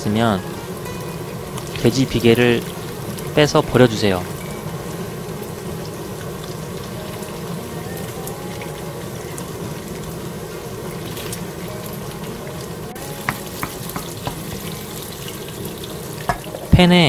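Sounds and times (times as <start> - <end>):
pork sizzling in a wok: 0.0 - 17.0
wooden spatula stirring: 13.0 - 16.5
sharp taps: 13.2 - 14.8.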